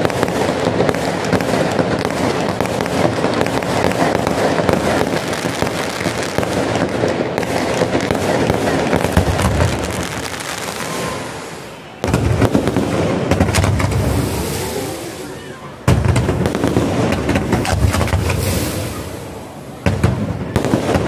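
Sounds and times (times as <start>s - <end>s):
fireworks crackling and popping: 0.0s - 21.0s.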